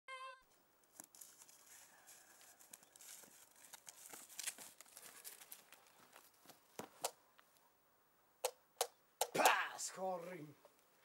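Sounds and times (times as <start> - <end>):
footsteps crunching through dry grass: 0.9 - 7.0.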